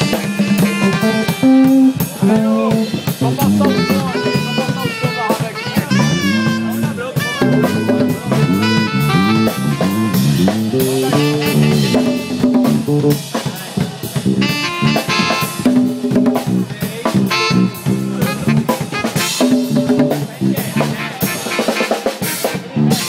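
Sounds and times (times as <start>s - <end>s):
congas and drums beat: 0.0s - 23.0s
live band music: 0.0s - 23.0s
sliding melodic line: 3.2s - 5.2s, 5.9s - 13.1s.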